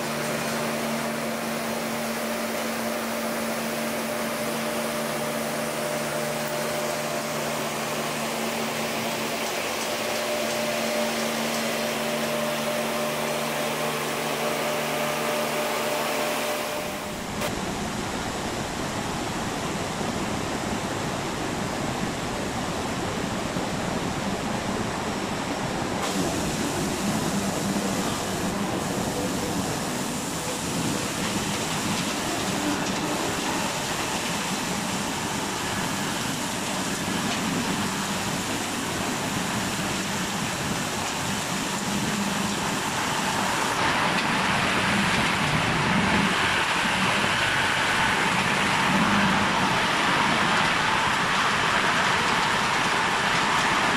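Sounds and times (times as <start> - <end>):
sawmill motor hum: 0.0 - 17.6, 26.0 - 50.4.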